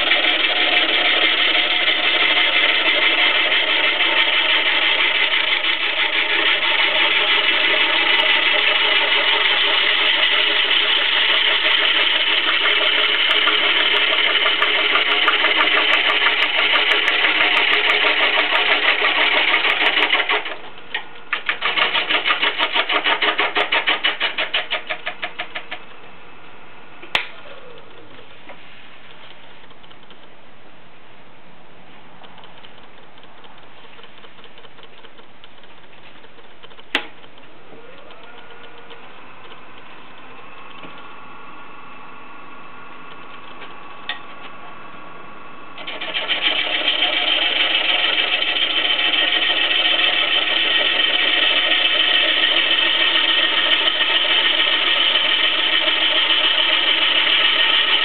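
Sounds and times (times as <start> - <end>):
gouge cutting wood on lathe: 0.0 - 25.8, 45.8 - 58.0
sharp click: 32.2 - 41.1.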